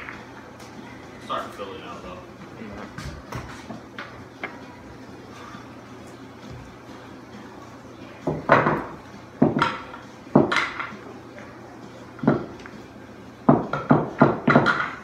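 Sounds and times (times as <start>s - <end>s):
pool balls clacking: 0.0s - 0.8s, 8.2s - 15.0s.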